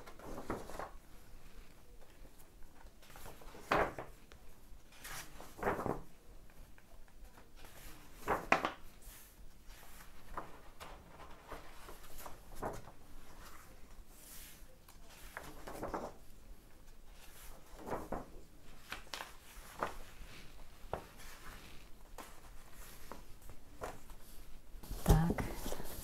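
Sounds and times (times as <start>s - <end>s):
magazine pages turning: 0.0s - 26.0s.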